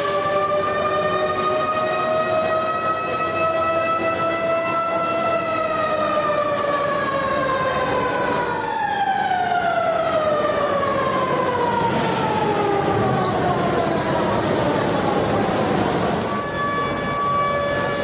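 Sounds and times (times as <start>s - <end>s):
siren winding down: 7.4s - 18.0s.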